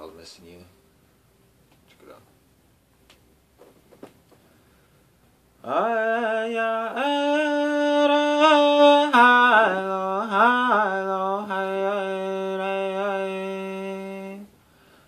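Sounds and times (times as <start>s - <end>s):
man singing unaccompanied: 5.6s - 14.6s.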